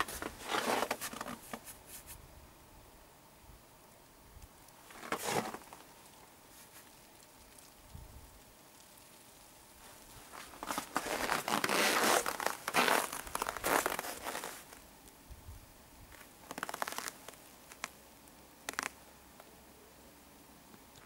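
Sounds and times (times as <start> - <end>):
boots crunching on frozen snow: 0.0 - 1.6, 4.9 - 5.8, 9.8 - 14.8.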